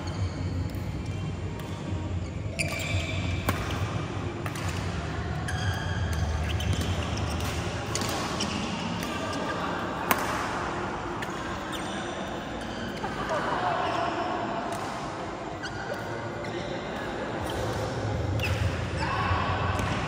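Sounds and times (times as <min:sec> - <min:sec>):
shoes squeaking on court: 0:00.0 - 0:03.8, 0:05.5 - 0:09.8, 0:11.6 - 0:13.4
racket striking shuttlecock: 0:02.6 - 0:04.9, 0:10.0 - 0:10.6.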